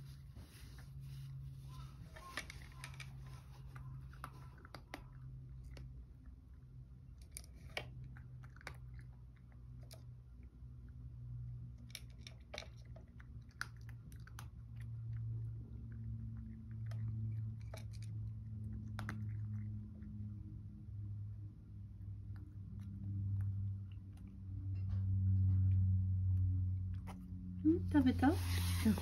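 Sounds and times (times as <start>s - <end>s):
low steady hum: 0.0s - 29.0s
cat crunching food: 2.0s - 24.7s.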